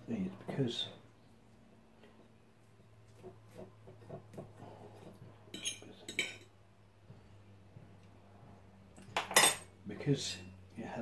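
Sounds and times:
fork clinking on ceramic plate: 5.5 - 6.5.

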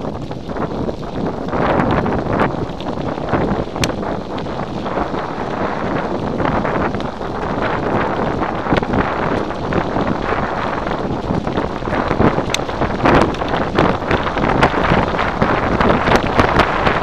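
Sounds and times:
bike tyres crunching on gravel: 0.0 - 17.0
wind buffeting microphone: 0.0 - 17.0
small clicks and rattles: 6.7 - 17.0.

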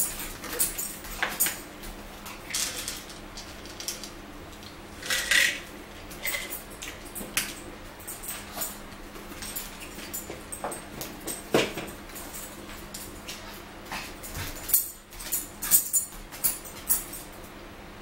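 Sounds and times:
plates and wrappers clattering: 5.0 - 7.6.

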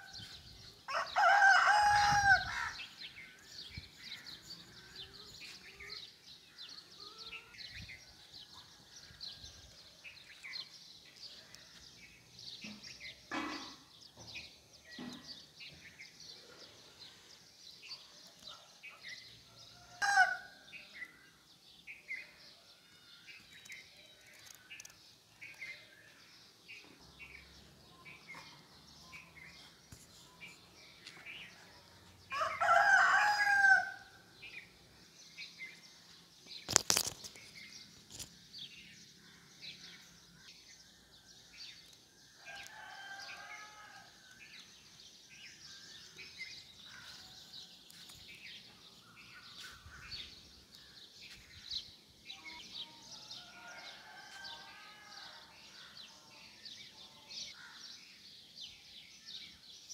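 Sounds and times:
small birds chirping: 0.0 - 59.9
rooster crowing: 0.9 - 2.8, 32.3 - 34.0, 42.4 - 44.1.

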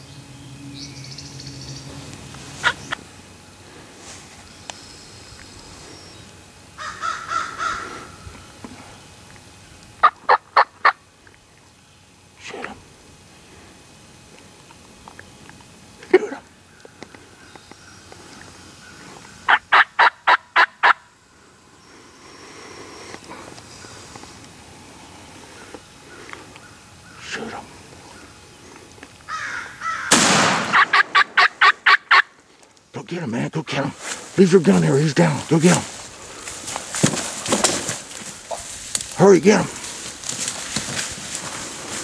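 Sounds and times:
turkey gobbling: 2.6 - 3.0, 6.8 - 8.2, 10.0 - 11.0, 18.9 - 21.1, 29.3 - 32.4
turkey yelps: 2.6 - 3.0, 6.8 - 8.2, 10.0 - 11.0, 19.5 - 21.0, 29.3 - 32.3.

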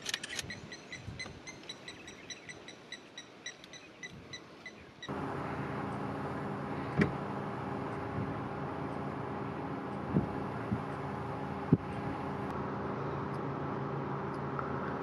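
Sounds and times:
vehicle engine idling: 5.1 - 15.0.

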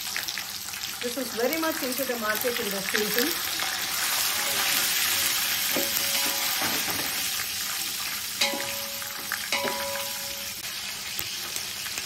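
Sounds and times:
hot oil sizzling: 0.0 - 12.0
spatula scraping pot: 3.6 - 7.2
spatula knocking ringing pot: 4.3 - 7.2, 8.4 - 10.6.

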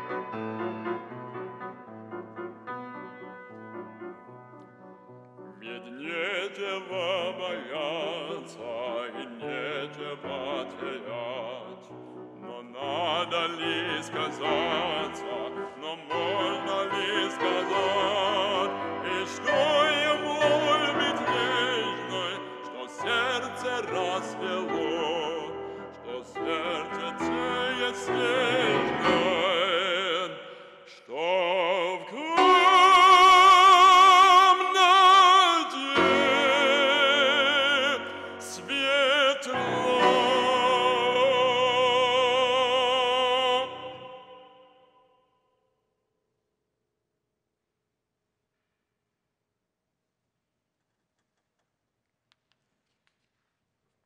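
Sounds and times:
piano accompaniment: 0.0 - 30.4, 31.3 - 44.0
operatic singing voice: 5.6 - 45.1.

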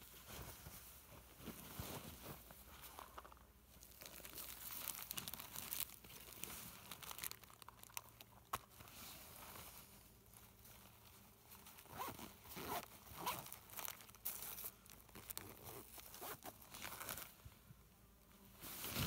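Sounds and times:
rustling of packets: 0.0 - 17.4
zipper pulled closed: 11.8 - 13.6, 15.3 - 17.2.

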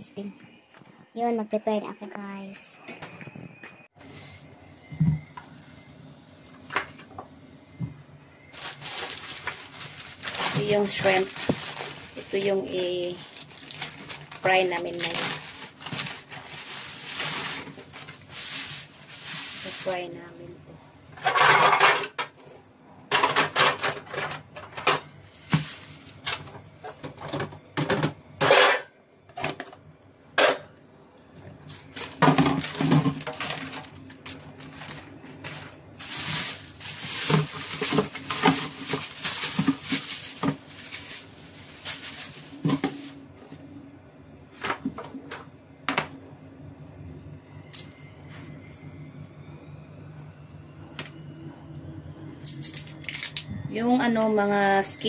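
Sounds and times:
plastic bag crinkling: 8.5 - 20.6, 25.2 - 26.5, 31.7 - 43.3, 52.6 - 53.4
clatter in a kitchen sink: 21.2 - 22.3.

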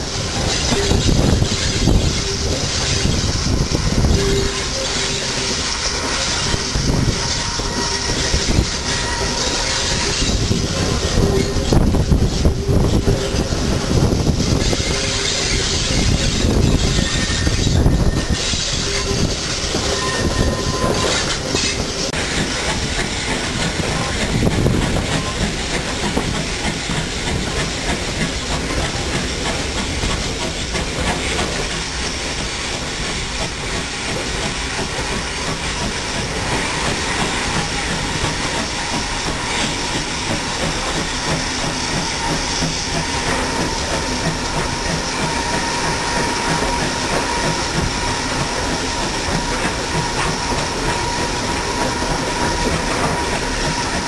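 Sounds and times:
wind noise on microphone: 0.0 - 4.8, 6.3 - 31.7
train wheels clicking over rail joints: 0.0 - 54.0.

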